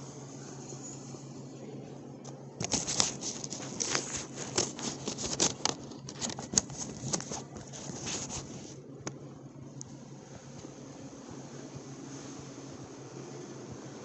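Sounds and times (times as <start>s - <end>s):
phone rubbing against jacket: 2.7s - 8.8s.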